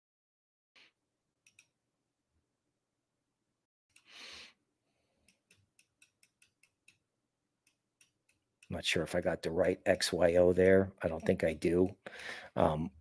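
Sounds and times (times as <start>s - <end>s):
person breathing: 4.0s - 5.4s, 12.0s - 12.6s.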